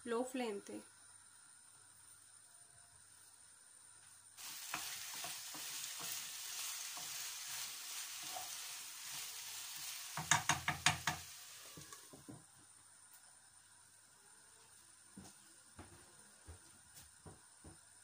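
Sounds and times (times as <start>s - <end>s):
vegetables sizzling in a pan: 3.0s - 15.7s
spatula stirring and scraping: 4.4s - 12.0s
sharp knocks against pan: 10.2s - 11.2s.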